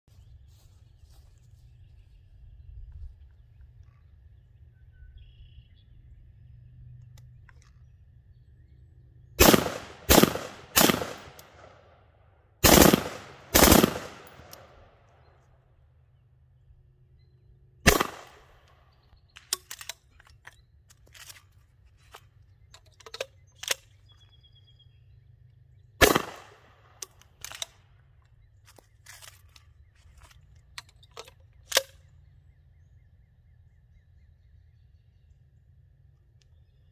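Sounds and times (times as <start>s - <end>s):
rifle gunshots with echo: 9.4s - 12.0s, 12.6s - 15.0s, 17.8s - 18.6s, 26.0s - 27.0s.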